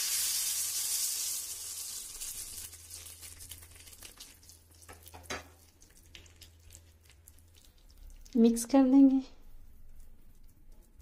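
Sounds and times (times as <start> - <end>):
hot oil sizzling: 0.0 - 8.1.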